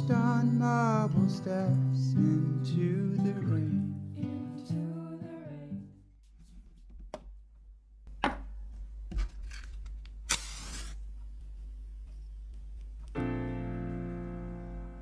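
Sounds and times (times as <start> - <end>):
acoustic guitar music: 0.0 - 5.8, 13.1 - 15.0
match being struck: 10.2 - 11.0.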